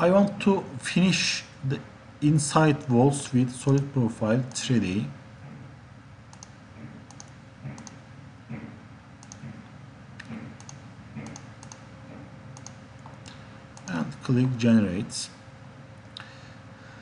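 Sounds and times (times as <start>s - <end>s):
low room noise: 0.0s - 17.0s
computer mouse clicking: 6.3s - 8.6s, 9.2s - 9.6s, 10.2s - 11.9s, 12.6s - 12.8s.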